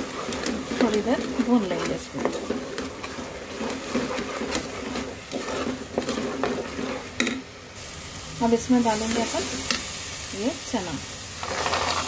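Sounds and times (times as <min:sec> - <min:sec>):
spoon scraping metal pot: 0:00.0 - 0:07.4, 0:11.4 - 0:12.0
light sizzle: 0:00.0 - 0:12.0.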